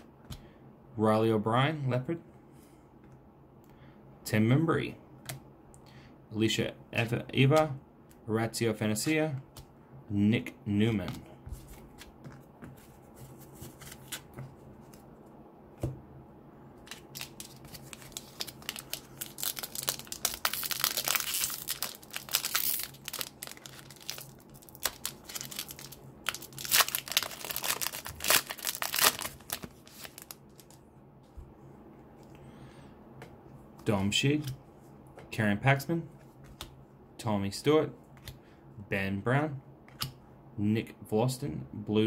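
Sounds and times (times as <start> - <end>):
foil wrapper tearing and crinkling: 16.9 - 30.8.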